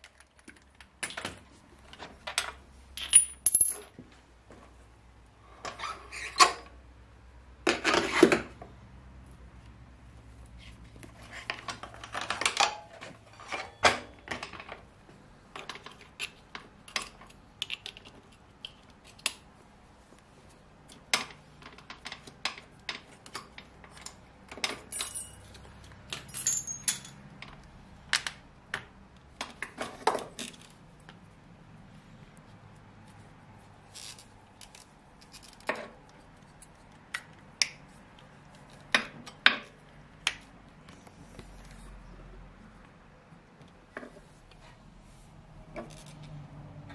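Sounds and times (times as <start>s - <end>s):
metal tools clinking: 3.0s - 3.9s, 24.7s - 27.2s
metallic ring: 26.3s - 27.2s.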